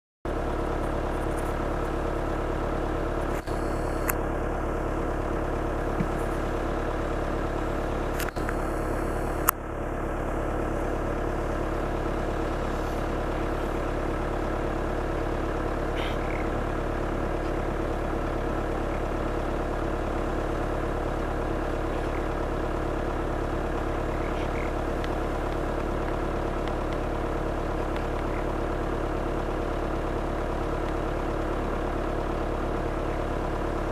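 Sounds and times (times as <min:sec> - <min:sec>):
vehicle engine idling: 0:00.3 - 0:33.9
sharp clicks: 0:03.2 - 0:04.2, 0:08.1 - 0:08.7, 0:24.0 - 0:28.5.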